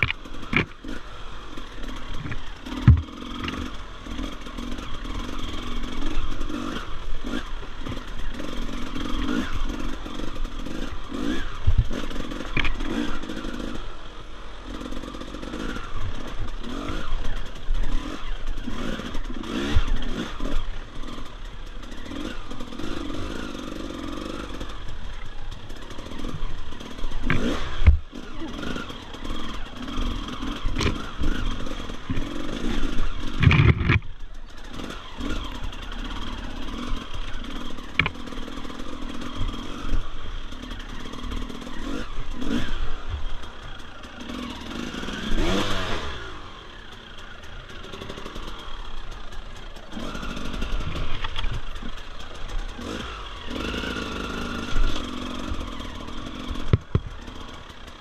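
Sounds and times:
dirt bike engine revving: 0.0s - 58.0s
sharp knocks and clatter: 2.2s - 3.7s, 33.3s - 34.1s, 56.6s - 57.2s.

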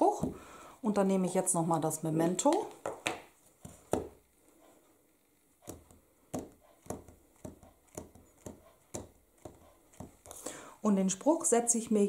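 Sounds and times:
stamp block tapping ink pad: 5.7s - 10.3s.

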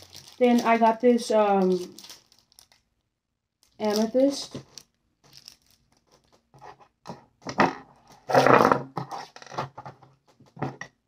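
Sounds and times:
plastic tearing: 0.0s - 2.9s, 3.6s - 6.5s
plastic packaging rustling: 0.0s - 3.0s, 3.6s - 6.5s.

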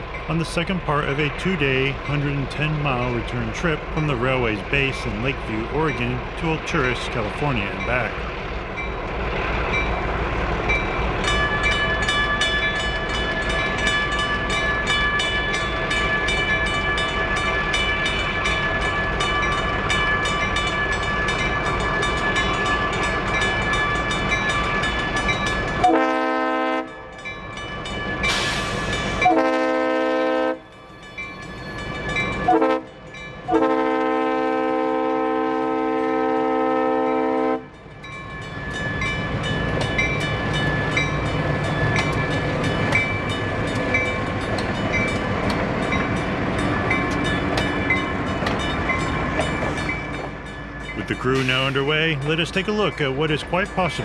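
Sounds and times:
crossing bell ringing rapidly: 0.0s - 9.0s, 9.7s - 29.6s, 30.6s - 33.5s, 37.1s - 54.0s
freight train rumble: 0.0s - 54.0s
train air horn blasts: 25.8s - 27.0s, 29.2s - 30.6s, 32.5s - 32.9s, 33.5s - 37.7s.

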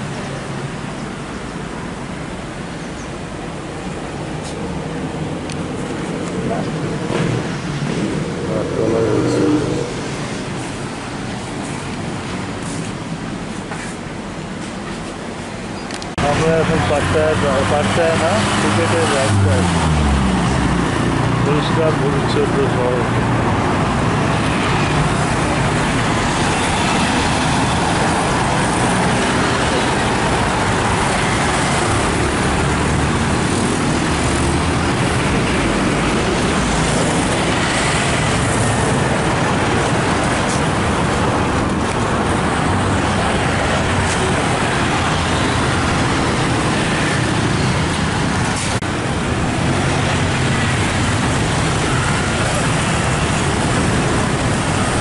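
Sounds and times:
street traffic passing: 0.0s - 55.0s.

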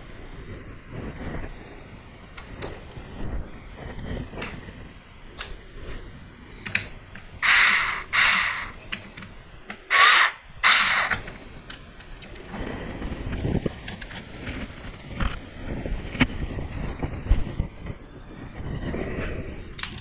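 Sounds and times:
cordless screwdriver driving screws: 7.4s - 8.8s, 9.9s - 11.2s.

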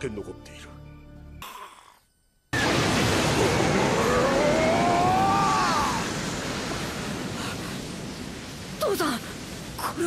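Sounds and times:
loud rushing burst: 2.6s - 9.8s.

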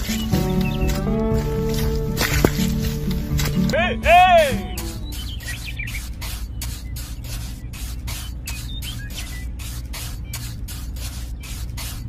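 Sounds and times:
rhythmic hissing scrapes: 0.0s - 12.0s
steady low hum: 0.0s - 12.0s.

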